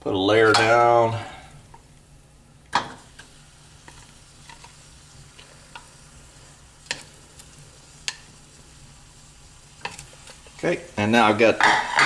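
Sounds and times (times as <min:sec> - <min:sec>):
faint sizzle: 0:00.0 - 0:12.0
wooden spoon knocking on skillet: 0:11.5 - 0:12.0.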